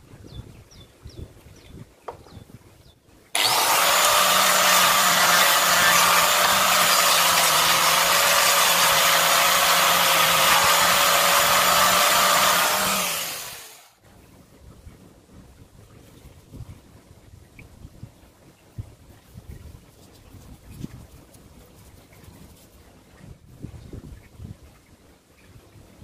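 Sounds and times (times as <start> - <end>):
electric sander whining: 3.4 - 14.0.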